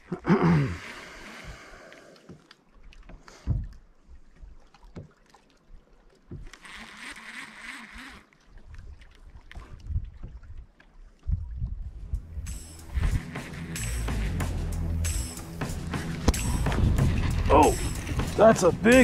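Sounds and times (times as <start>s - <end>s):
fishing reel whir: 6.4s - 8.4s, 12.5s - 15.4s.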